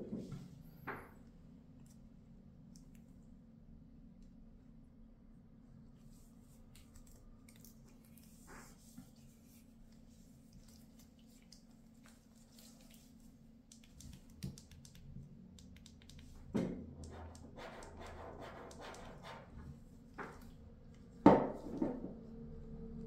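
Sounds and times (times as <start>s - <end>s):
low hum: 14.7s - 23.0s.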